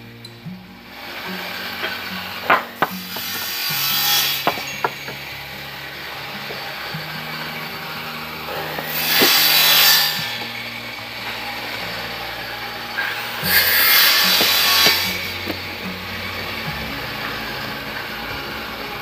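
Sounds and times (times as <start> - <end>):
background music with low notes: 0.0 - 19.0
scraping on wood: 1.3 - 5.4, 8.5 - 15.8.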